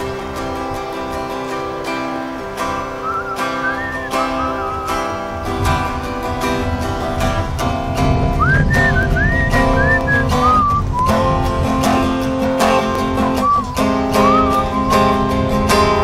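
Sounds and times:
acoustic guitar strumming chords: 0.0 - 16.0
whistled melody: 3.0 - 5.2, 8.4 - 11.4, 13.2 - 15.8.

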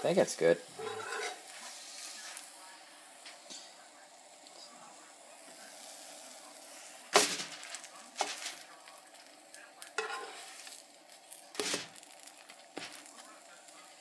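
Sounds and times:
pancake sizzling: 0.0 - 14.0
utensil scraping a skillet: 0.7 - 2.5, 9.9 - 10.9, 11.6 - 13.3.

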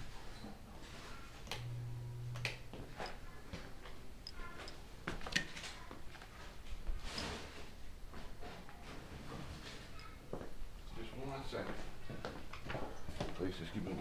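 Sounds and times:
low hum: 1.5 - 3.2.

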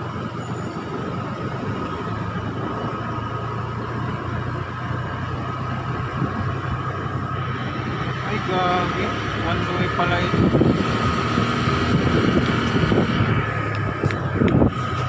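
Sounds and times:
motorcycle engine running: 0.0 - 15.0
road and wind noise: 0.0 - 15.0.

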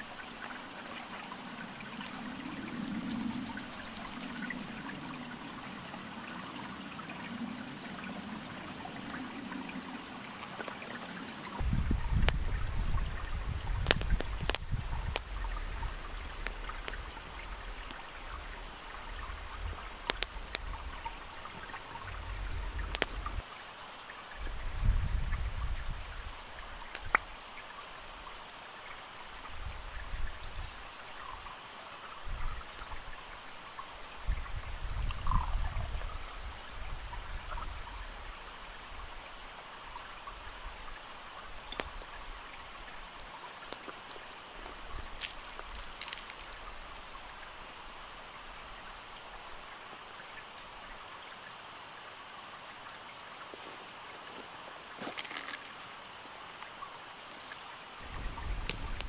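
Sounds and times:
stream running over stones: 0.0 - 59.0
light clicks: 22.8 - 23.4.

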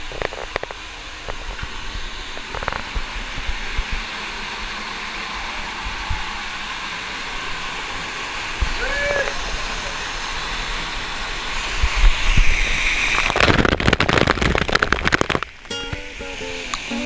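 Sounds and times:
seawater rushing in a cave: 0.0 - 15.6.

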